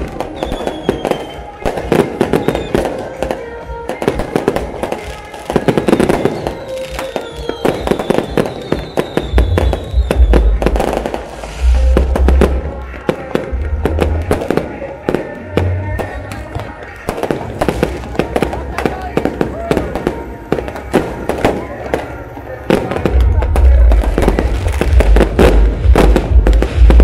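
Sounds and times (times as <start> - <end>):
fireworks whistles: 0.0 - 14.8
fireworks bangs and crackles: 0.0 - 27.0.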